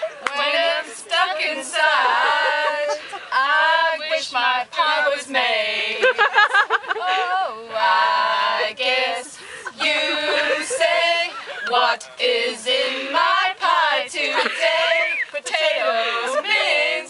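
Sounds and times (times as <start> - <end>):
women singing together: 0.0 - 17.0.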